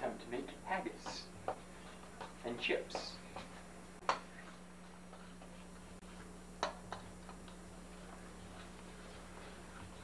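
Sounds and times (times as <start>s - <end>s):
utensil knocking on steel bowl: 1.0s - 1.6s.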